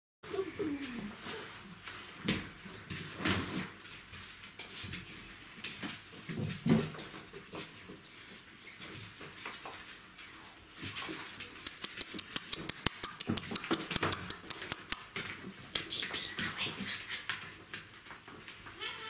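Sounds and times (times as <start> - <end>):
puppies scuffling: 0.3 - 19.0
fast sharp clicks: 11.6 - 15.2.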